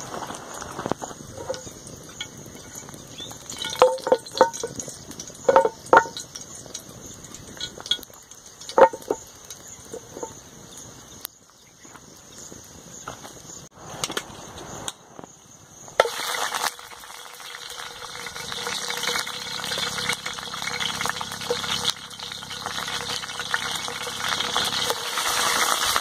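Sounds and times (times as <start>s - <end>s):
wood fire crackling: 0.0s - 26.0s
frying pan clanking: 1.1s - 10.4s, 16.0s - 26.0s.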